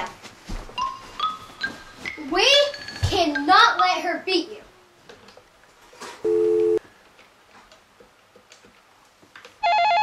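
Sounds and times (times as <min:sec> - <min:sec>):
electronic telephone ring: 0:09.6 - 0:10.0.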